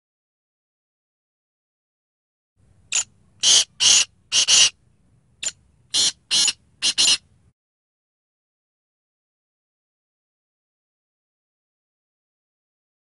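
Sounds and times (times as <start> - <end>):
bird calling scratchy phrases: 2.9 - 4.8, 5.4 - 7.2.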